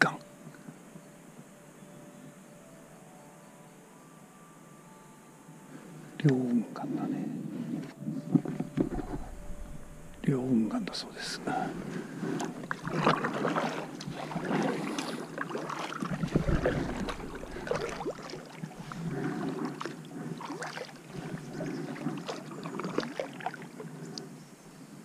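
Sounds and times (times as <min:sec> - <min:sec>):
wind rumble on microphone: 0:07.0 - 0:15.0, 0:16.0 - 0:20.2
paddle splashing water: 0:08.8 - 0:24.2.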